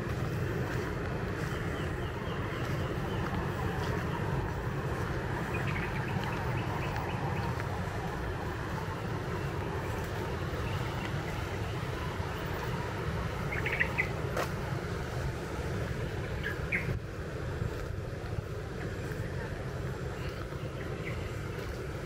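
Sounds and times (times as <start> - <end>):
low outdoor rushing noise: 0.0 - 22.0
bird chirps: 13.5 - 14.2.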